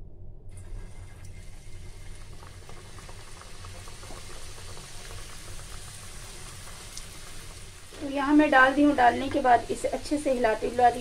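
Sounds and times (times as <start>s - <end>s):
low steady hum: 0.0s - 4.7s
oil sizzling and popping: 0.5s - 11.0s.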